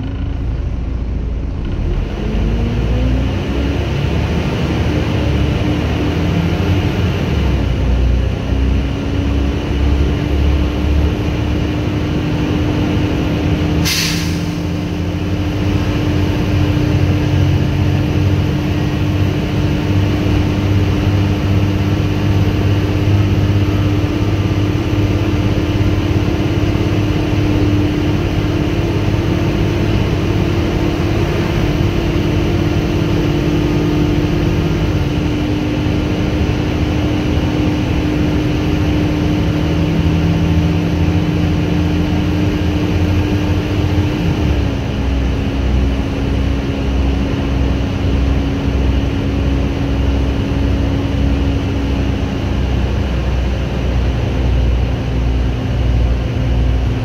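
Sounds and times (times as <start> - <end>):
steady driveline whine: 0.0 - 3.8
bus diesel engine running: 0.0 - 57.0.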